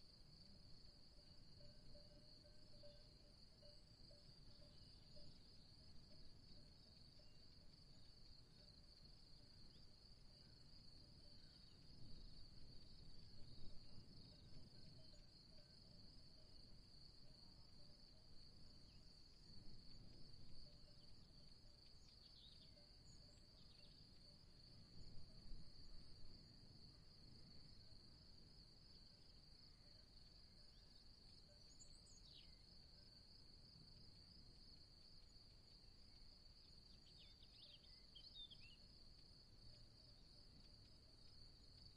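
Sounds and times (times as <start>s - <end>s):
faint chirps: 18.7s - 26.5s, 29.9s - 34.0s, 35.2s - 41.9s.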